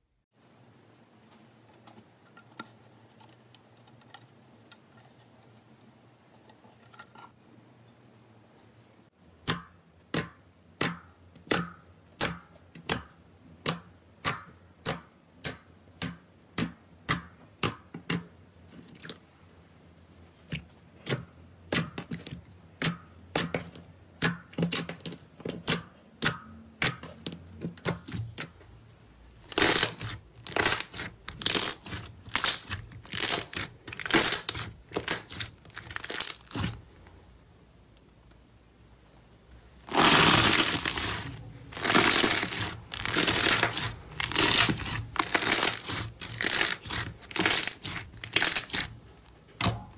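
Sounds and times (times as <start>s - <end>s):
squishy slime crackles: 29.5s - 36.9s, 39.9s - 49.0s.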